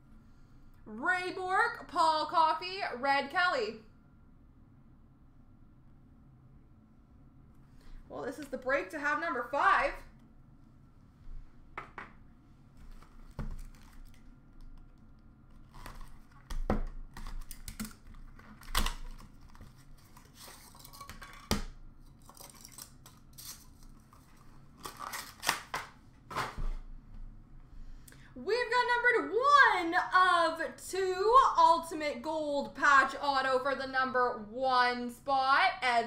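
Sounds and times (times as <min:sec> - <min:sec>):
packaging rustling and crinkling: 0:12.8 - 0:26.8.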